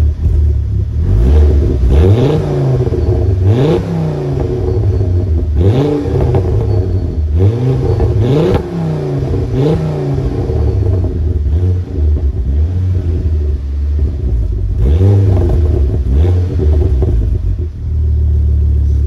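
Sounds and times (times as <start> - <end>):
car engine idling and revving: 0.0 - 19.0.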